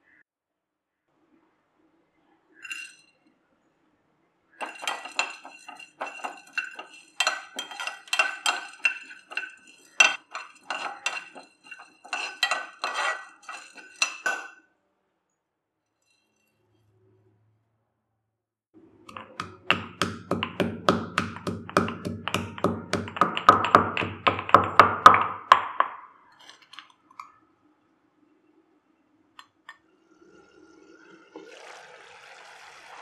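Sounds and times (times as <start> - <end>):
stone pestle pounding spices: 4.6 - 14.3, 19.1 - 26.0.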